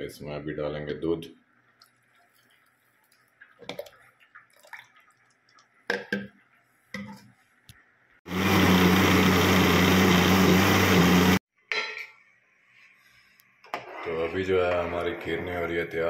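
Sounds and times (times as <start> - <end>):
blender motor running: 8.3 - 11.4.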